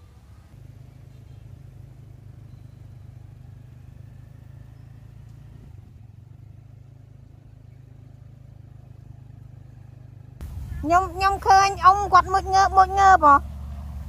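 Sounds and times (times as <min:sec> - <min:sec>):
low engine hum: 0:00.0 - 0:14.0.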